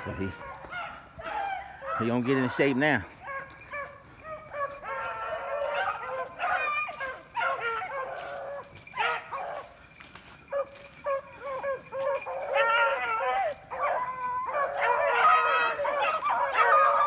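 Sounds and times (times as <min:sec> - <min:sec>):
hounds baying: 0:00.0 - 0:17.0.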